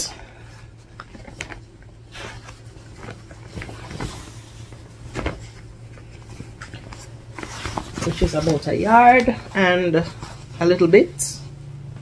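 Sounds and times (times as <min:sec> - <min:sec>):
low steady hum: 0:00.0 - 0:12.0
fabric rustling and flapping: 0:00.8 - 0:11.0.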